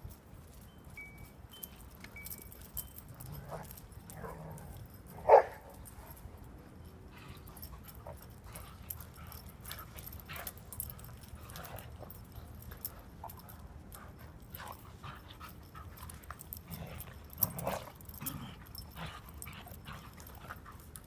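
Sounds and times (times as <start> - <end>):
faint clicks and rustles: 0.0 - 21.0
dog barking: 5.2 - 5.6.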